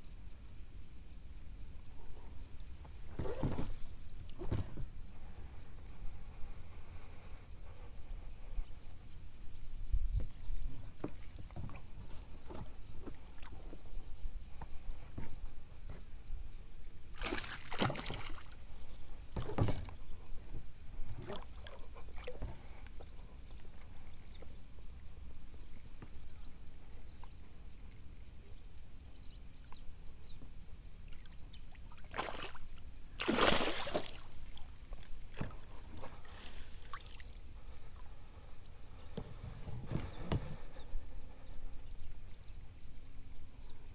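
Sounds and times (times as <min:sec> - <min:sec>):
fish splashing in water: 0:17.2 - 0:18.7, 0:32.1 - 0:34.8, 0:35.4 - 0:37.4.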